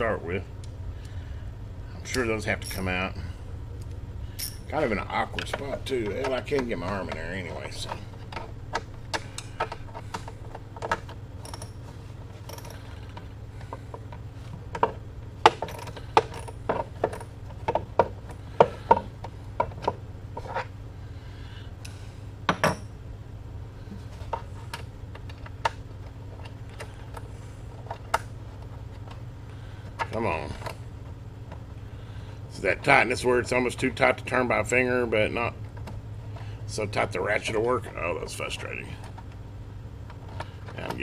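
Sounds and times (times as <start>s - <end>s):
steady low hum: 0.0s - 41.0s
ratchet and metal tools clicking: 4.4s - 4.7s.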